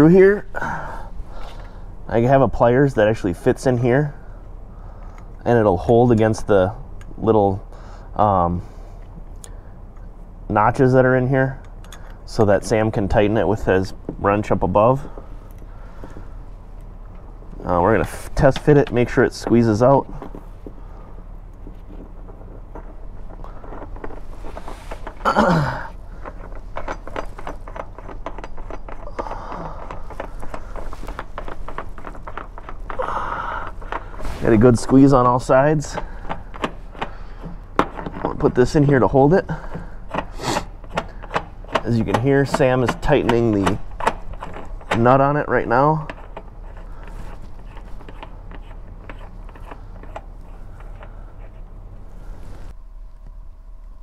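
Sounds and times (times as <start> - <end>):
person exhaling with effort: 25.2 - 26.2, 29.0 - 30.1, 33.0 - 34.3.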